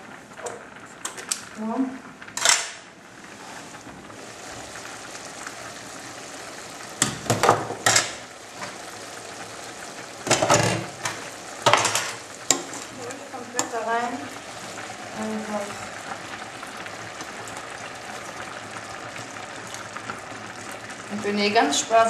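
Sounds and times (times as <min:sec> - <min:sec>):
meat frying in a pot: 0:00.0 - 0:22.0
stirring in a pot: 0:07.3 - 0:21.2.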